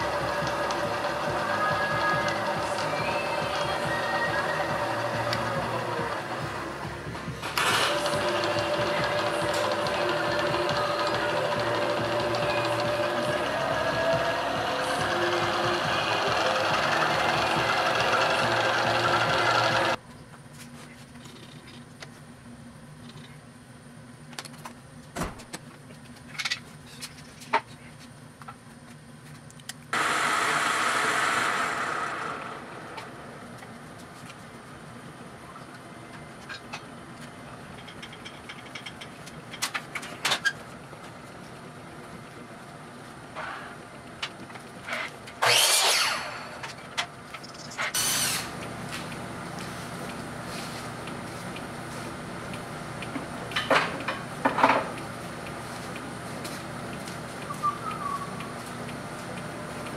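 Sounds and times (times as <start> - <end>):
lathe spindle whirring: 0.0 - 20.0, 30.0 - 33.7, 45.4 - 46.9.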